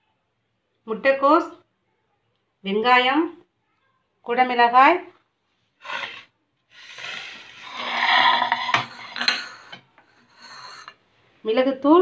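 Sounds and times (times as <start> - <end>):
ceramic scraping rub: 5.8 - 11.0
ceramic plates being handled: 7.2 - 11.0.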